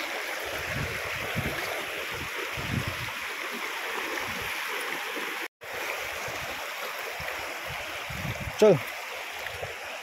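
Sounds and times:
river rushing over stones: 0.0 - 10.0.

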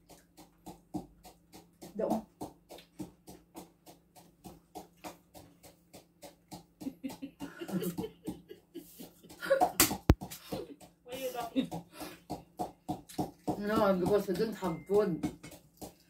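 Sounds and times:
crunchy vegetables being chewed: 12.7 - 13.5.

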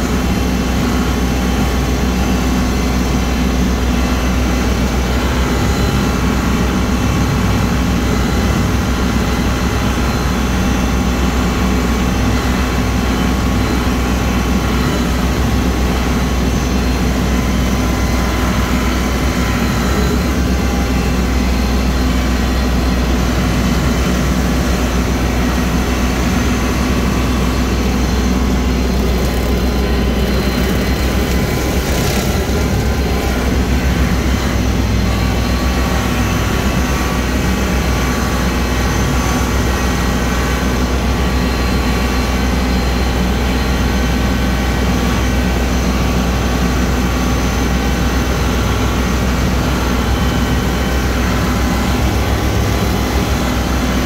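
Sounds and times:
tractor diesel engine running: 0.0 - 54.0
rotary cutter cutting grass: 27.6 - 34.8.

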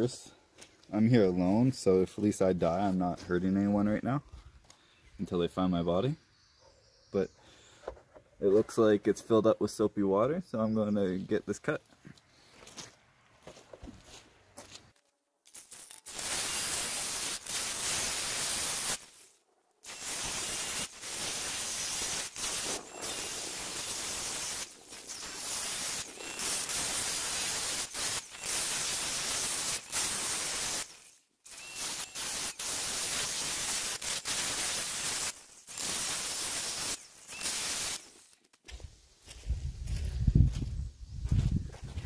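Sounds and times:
angle grinder cutting steel: 15.5 - 38.4.

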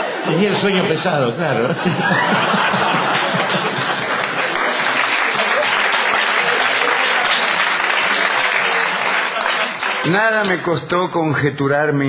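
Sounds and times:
audience applauding: 1.9 - 10.7.

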